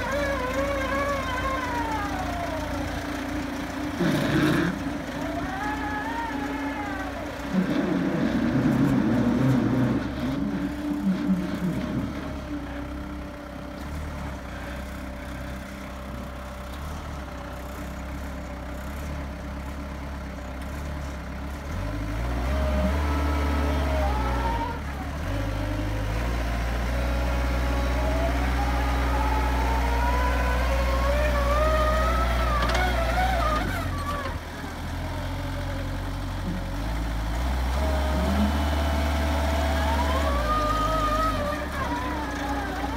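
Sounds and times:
diesel engine revving: 0:00.0 - 0:42.9.

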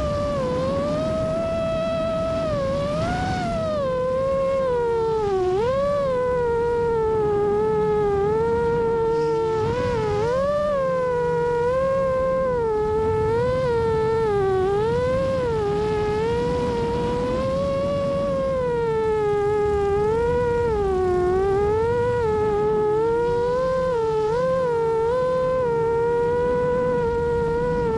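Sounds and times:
quadcopter motors whining: 0:00.0 - 0:27.9.

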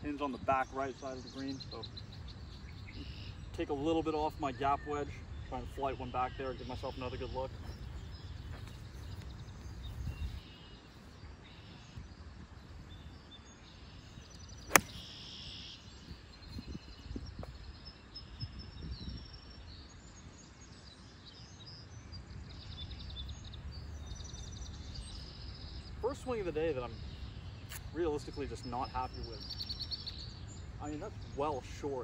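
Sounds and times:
birds chirping faintly: 0:00.0 - 0:32.0
golf club striking ball: 0:14.7 - 0:15.3.

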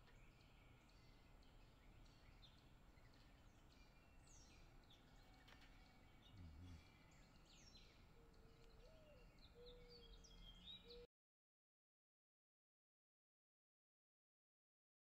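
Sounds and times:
songbirds chirping: 0:00.0 - 0:11.1.

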